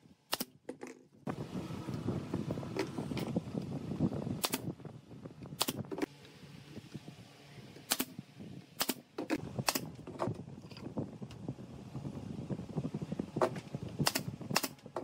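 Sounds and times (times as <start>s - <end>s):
pneumatic nailer firing: 4.4s - 4.7s, 7.9s - 8.2s, 8.8s - 9.9s, 14.0s - 14.8s.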